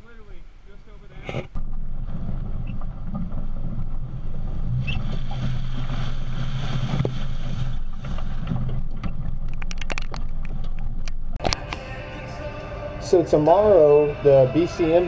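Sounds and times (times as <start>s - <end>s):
sharp clicks: 9.0s - 11.8s.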